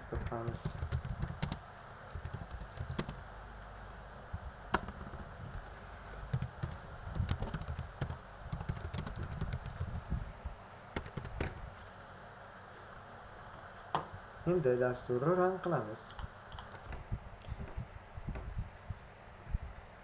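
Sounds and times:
keyboard key clicks: 4.7s - 5.6s.

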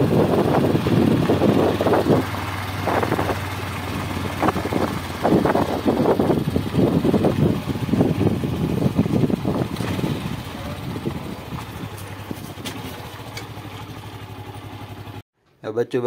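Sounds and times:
wind rushing on microphone: 0.0s - 12.6s
motorcycle engine humming: 0.0s - 15.2s.

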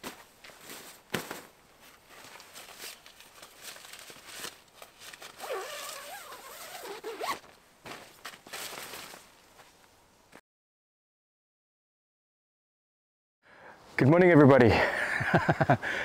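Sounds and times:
zipper being pulled: 5.1s - 7.5s.

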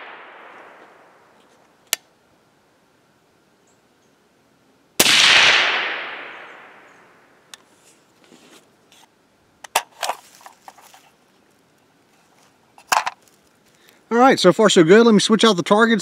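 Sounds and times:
suppressed rifle shot echoing: 0.0s - 1.3s, 5.0s - 7.3s.

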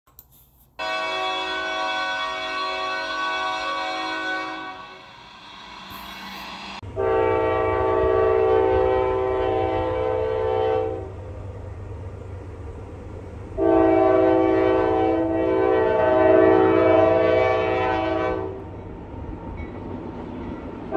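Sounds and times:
locomotive air horn blasts: 0.8s - 5.3s, 6.8s - 11.2s, 13.6s - 18.6s
train rumble: 0.8s - 20.9s.

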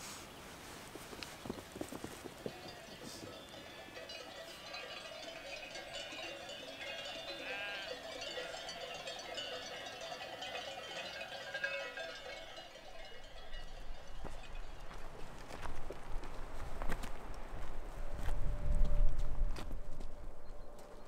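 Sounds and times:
sheep bells ringing: 2.4s - 15.7s
sheep bleating: 6.0s - 8.8s.

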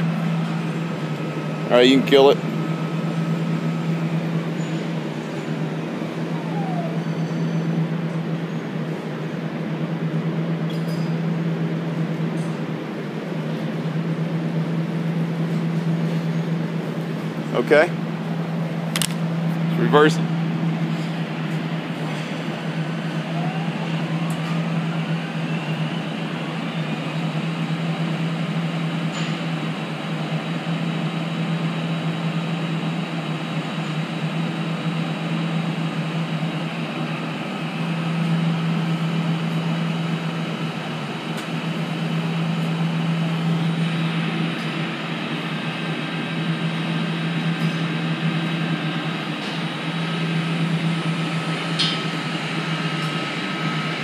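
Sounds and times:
pump humming: 0.0s - 8.5s
faint motor whine rising: 0.0s - 10.3s, 22.6s - 28.3s.

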